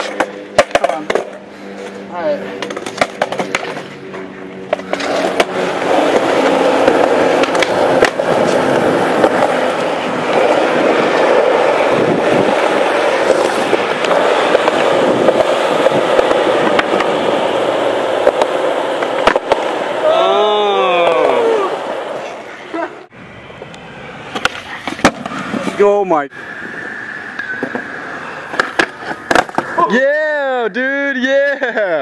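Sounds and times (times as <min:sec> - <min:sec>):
skateboard wheels rolling on concrete: 0:00.0 - 0:32.0
skateboard clicks: 0:02.6 - 0:11.9, 0:12.5 - 0:17.5, 0:18.1 - 0:19.8, 0:28.5 - 0:29.8.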